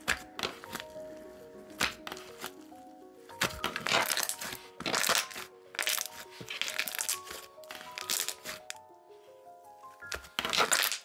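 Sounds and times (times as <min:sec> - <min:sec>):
soft background music: 0:00.0 - 0:11.0
slime crackly pops and squishes: 0:03.4 - 0:08.7, 0:10.1 - 0:11.0.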